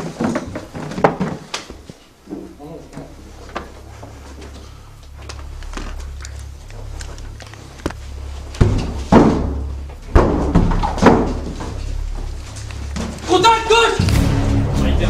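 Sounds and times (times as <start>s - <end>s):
sudden knocks and thumps: 8.5s - 13.3s.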